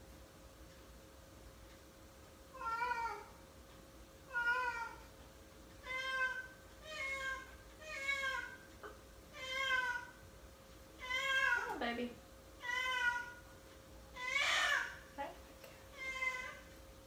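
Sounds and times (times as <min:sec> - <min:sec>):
cat meowing: 0:12.6 - 0:13.4.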